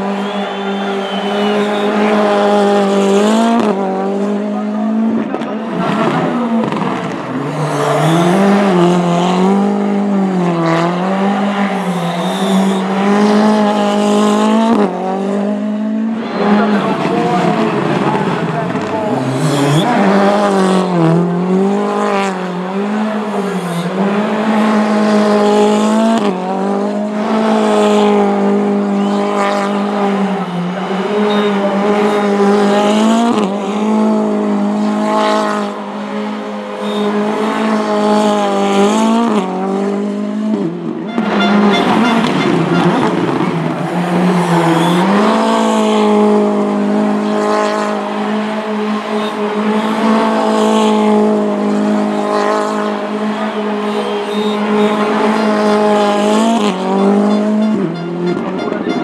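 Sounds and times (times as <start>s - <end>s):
tyres squealing on tarmac: 0.0s - 3.4s, 10.8s - 13.6s, 16.2s - 20.8s, 28.8s - 34.0s, 36.6s - 37.7s, 41.1s - 46.1s, 53.1s - 59.0s
car engine at high revs: 0.0s - 59.0s.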